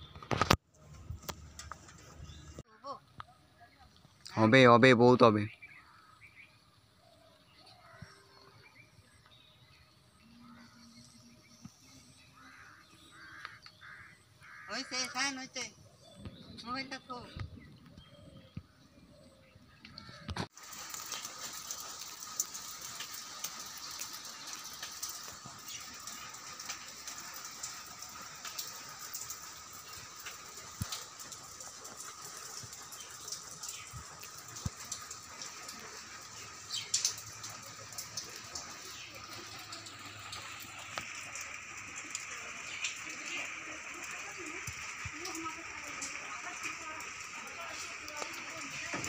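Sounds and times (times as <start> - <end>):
rain pattering: 0.0 - 49.0
drops ticking: 19.9 - 49.0.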